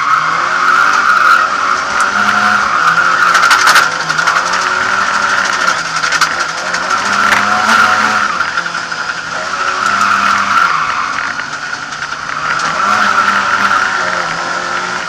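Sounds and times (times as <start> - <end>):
car engine revving: 0.0 - 15.0
tyres squealing: 0.0 - 15.0.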